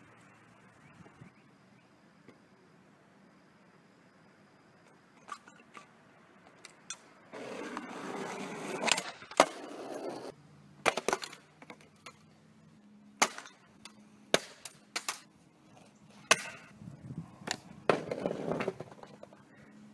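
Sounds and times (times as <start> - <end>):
skateboard wheels rolling on asphalt: 0.0 - 12.8, 13.6 - 19.9
skateboard hitting with loud crack: 8.5 - 9.8, 10.8 - 11.8, 17.4 - 19.2
skateboard clacking on pavement: 17.4 - 19.5.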